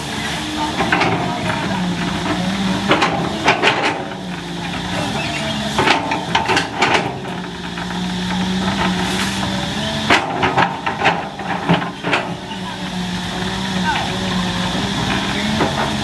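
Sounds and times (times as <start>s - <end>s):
excavator diesel engine humming: 0.0s - 16.0s.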